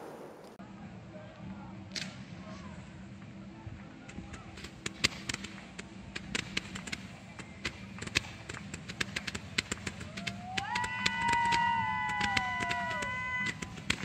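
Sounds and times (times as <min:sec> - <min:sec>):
fireworks popping and cracking: 0:00.0 - 0:00.6, 0:04.5 - 0:14.0
whistling firework: 0:00.0 - 0:00.6, 0:07.4 - 0:14.0.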